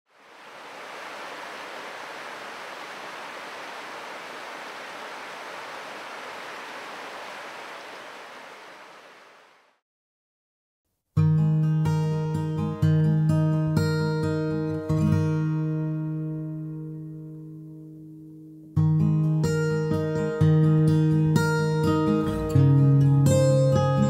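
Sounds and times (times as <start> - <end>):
flowing water rushing: 0.1 - 9.8.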